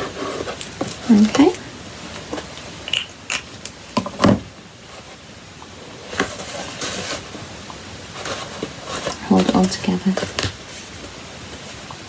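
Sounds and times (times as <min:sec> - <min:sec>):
paper rustling and sliding: 0:06.0 - 0:07.4, 0:08.1 - 0:11.8.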